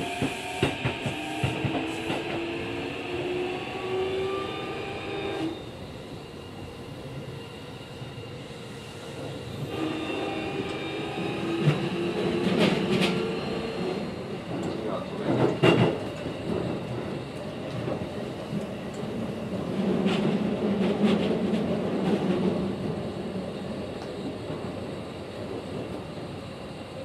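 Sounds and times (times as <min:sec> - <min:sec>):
rail-joint clicks: 0:11.5 - 0:13.3, 0:14.5 - 0:19.1, 0:24.0 - 0:24.2.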